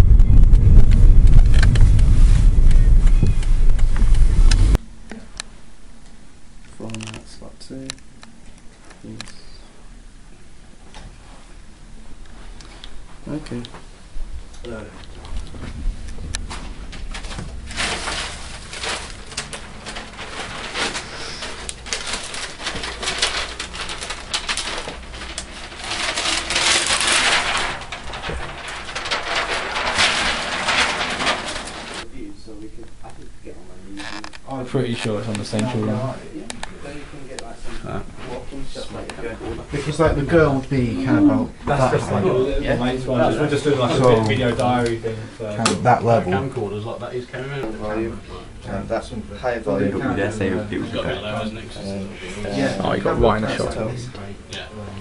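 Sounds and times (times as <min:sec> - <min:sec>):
wind buffeting microphone: 0:00.0 - 0:04.8, 0:15.1 - 0:20.8
bags rustling: 0:15.2 - 0:32.1.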